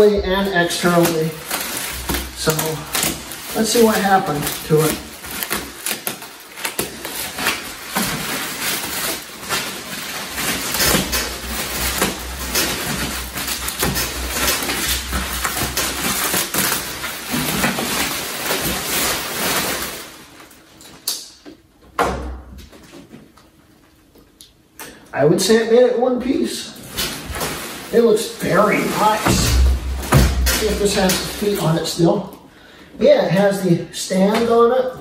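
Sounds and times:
bubble wrap crinkling: 0.0 - 21.6, 26.3 - 32.4.

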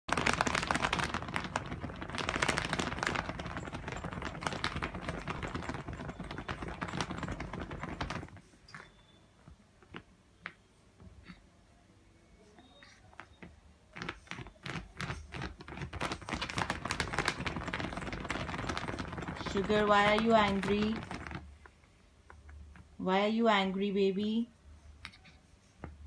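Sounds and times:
puppy claws scratching: 0.1 - 8.9, 12.8 - 21.5.

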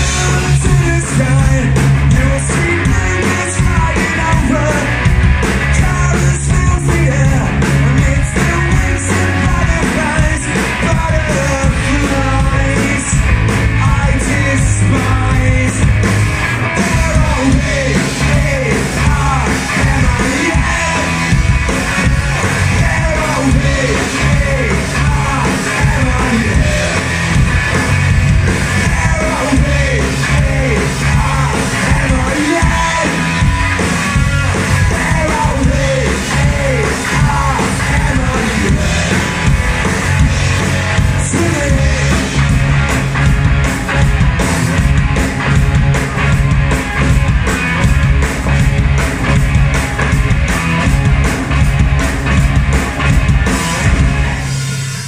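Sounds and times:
drums: 0.0 - 55.0
electric bass: 0.0 - 55.0
electric guitar: 0.0 - 55.0
person shouting singing: 16.8 - 21.2, 22.6 - 27.1, 28.8 - 33.6, 34.8 - 39.3.

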